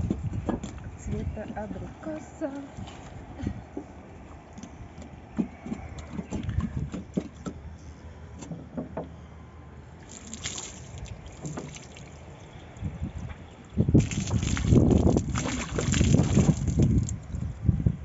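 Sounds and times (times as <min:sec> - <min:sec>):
wet feet shifting on roof tiles: 0:10.0 - 0:12.2, 0:14.0 - 0:17.3
brief splashes: 0:10.0 - 0:12.5, 0:14.0 - 0:17.4
water sloshing in plastic bottle: 0:10.0 - 0:17.6.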